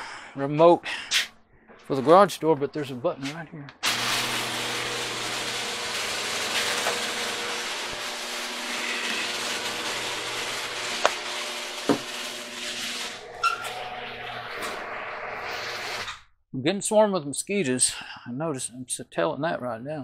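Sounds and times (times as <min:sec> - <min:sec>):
garage door motor hum and rattle: 0:03.8 - 0:14.8.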